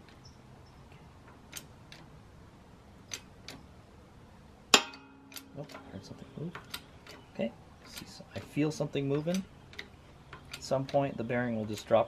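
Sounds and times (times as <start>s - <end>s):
bearing cracking under load: 6.5s - 12.0s.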